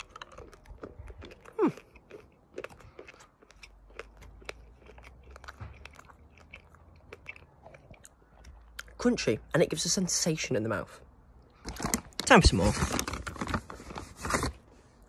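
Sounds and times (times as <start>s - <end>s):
chewing and crunching: 0.0s - 9.8s
person humming mm: 1.6s - 1.8s.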